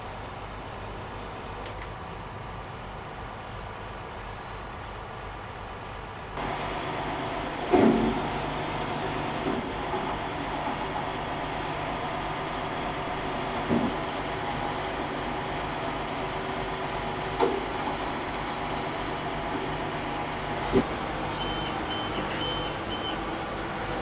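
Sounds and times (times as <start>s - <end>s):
diesel engine running: 0.0s - 24.0s
short high beeps: 21.4s - 23.2s.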